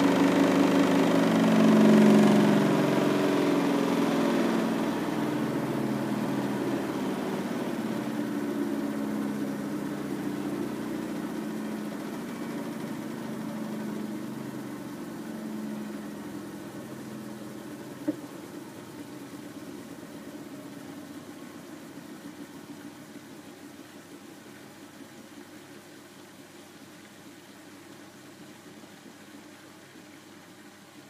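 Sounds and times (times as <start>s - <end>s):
washing machine running: 0.0s - 23.4s.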